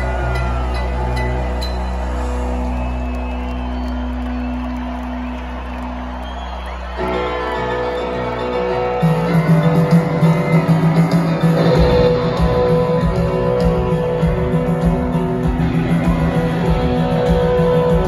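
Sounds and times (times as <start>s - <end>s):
live rock band: 6.7s - 18.0s.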